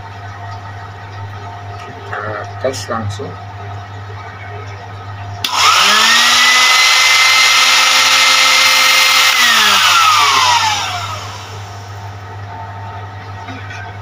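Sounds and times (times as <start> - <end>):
vacuum motor whining: 5.4 - 12.0.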